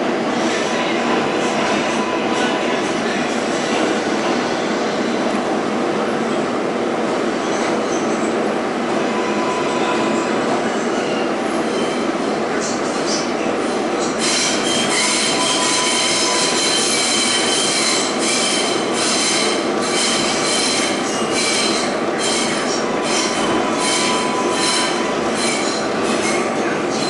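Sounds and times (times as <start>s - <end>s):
train wheels rumbling on rail: 0.0s - 27.0s
high wheel squeal: 14.1s - 26.4s.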